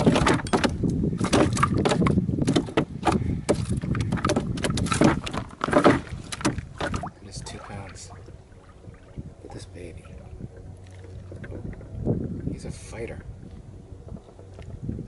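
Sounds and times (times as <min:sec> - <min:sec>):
fish slapping against canoe hull: 0:00.0 - 0:08.2
low rumble: 0:07.0 - 0:15.0.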